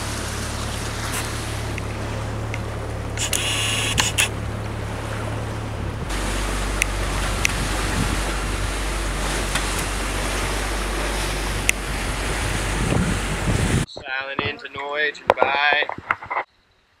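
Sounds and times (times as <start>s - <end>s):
water rushing along hull: 0.0s - 16.4s
wind on microphone: 5.8s - 14.6s, 15.2s - 16.5s.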